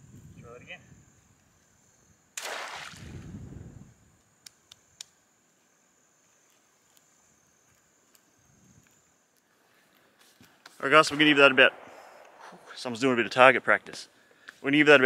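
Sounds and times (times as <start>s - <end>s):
high insect drone: 0.0s - 15.0s
net splashing into water: 2.4s - 3.1s
sharp clicks: 10.6s - 12.7s.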